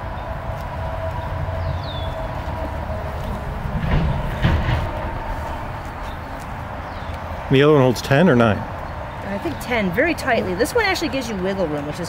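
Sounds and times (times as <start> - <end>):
steady low rumble: 0.0 - 7.6
wooden frames knocking: 2.9 - 6.7.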